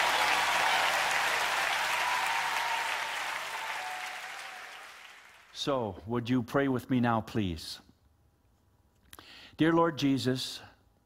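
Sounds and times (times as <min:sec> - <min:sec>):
audience applause: 0:00.0 - 0:05.5.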